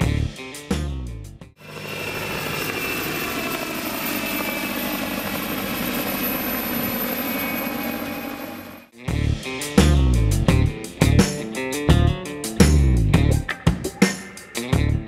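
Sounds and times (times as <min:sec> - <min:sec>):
helicopter flying overhead: 0:01.6 - 0:09.0.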